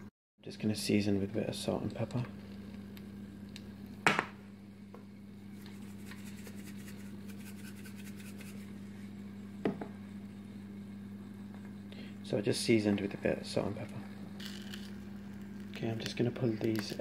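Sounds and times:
low electrical hum: 0.0 - 17.0
shaker knocking: 5.7 - 8.7.

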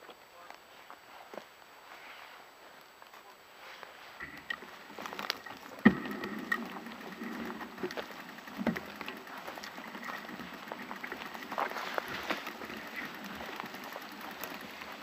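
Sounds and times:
bicycle rattling and clicking: 4.2 - 15.0.

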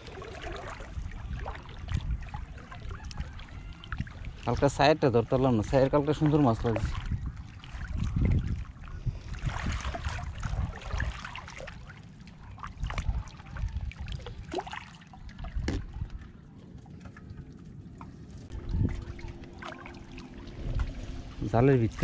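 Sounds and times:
water lapping and trickling: 0.0 - 22.0
knocks and clunks of boat planks: 15.6 - 15.9.

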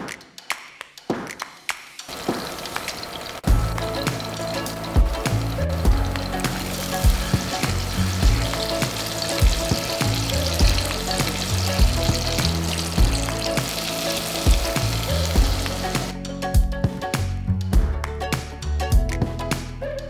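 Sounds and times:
fish sizzling in oil: 2.1 - 16.1.

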